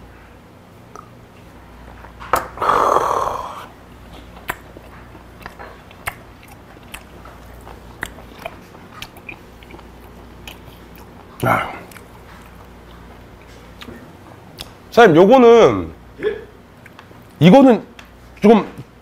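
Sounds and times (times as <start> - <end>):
wet mouth clicks: 0.9 - 1.2, 4.4 - 12.6, 14.6 - 14.8
man chewing: 2.0 - 14.8
breathy burst: 2.6 - 3.7.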